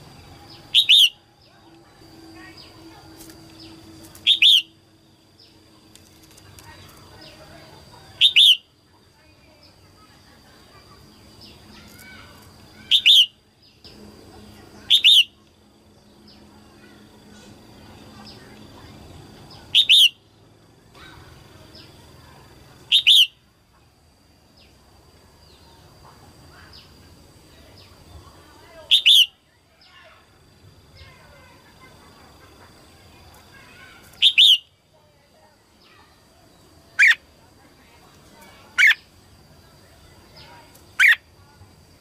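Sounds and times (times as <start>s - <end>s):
bird calling high notes: 0.5s - 4.8s, 14.9s - 15.4s, 22.9s - 23.4s, 28.9s - 29.4s, 34.0s - 34.7s.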